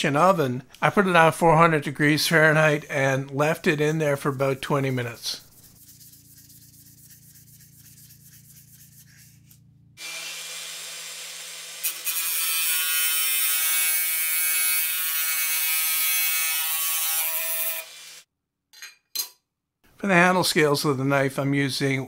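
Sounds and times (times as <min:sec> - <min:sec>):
sandpaper rubbing on steel: 0:04.3 - 0:09.6
angle grinder running: 0:10.0 - 0:18.2
grinder disc cutting steel: 0:10.0 - 0:18.2.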